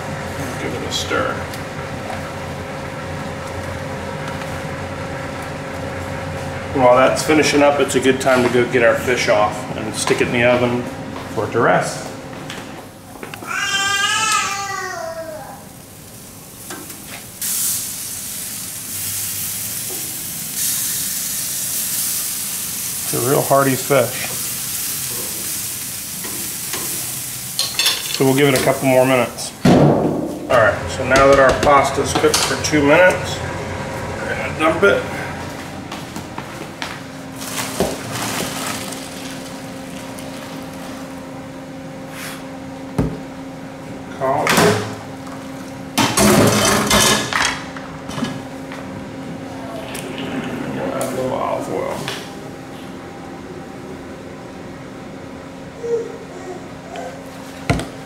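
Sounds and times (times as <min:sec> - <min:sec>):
steady hum: 0:00.0 - 0:13.6, 0:15.3 - 0:58.0
food sizzling on grill: 0:15.6 - 0:29.4.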